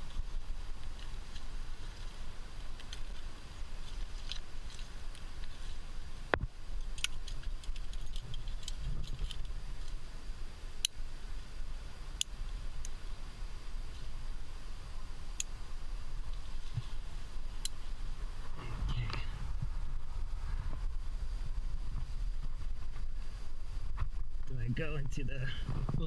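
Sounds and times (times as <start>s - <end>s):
low steady rumble: 0.0s - 26.0s
metal climbing gear clinking: 6.8s - 9.5s.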